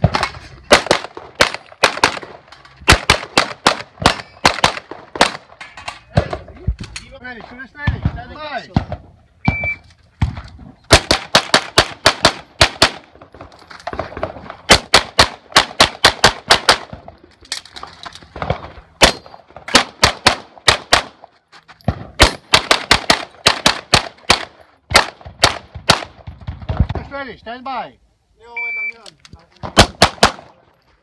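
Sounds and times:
pistol shots: 0:00.0 - 0:05.6, 0:10.9 - 0:13.2, 0:13.9 - 0:17.1, 0:18.4 - 0:21.2, 0:21.9 - 0:26.2, 0:29.6 - 0:30.6.

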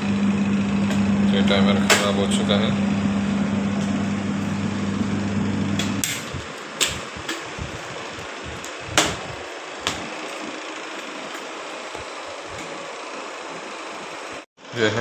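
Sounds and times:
washing machine motor humming: 0:00.0 - 0:14.4.

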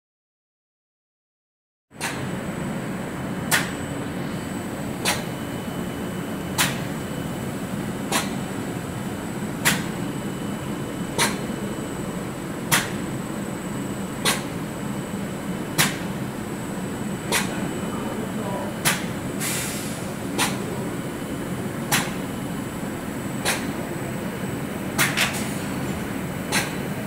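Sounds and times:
coating machine humming: 0:02.1 - 0:27.0
sharp repeating click: 0:06.6 - 0:06.8, 0:09.6 - 0:09.9, 0:11.2 - 0:11.4, 0:14.2 - 0:14.5, 0:15.8 - 0:16.0, 0:18.8 - 0:19.1, 0:20.4 - 0:20.6.

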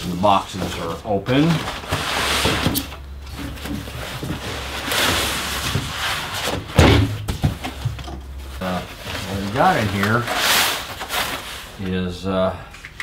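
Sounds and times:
cardboard and foam wrap rustling: 0:00.0 - 0:12.2
loud thump: 0:06.6 - 0:07.9.

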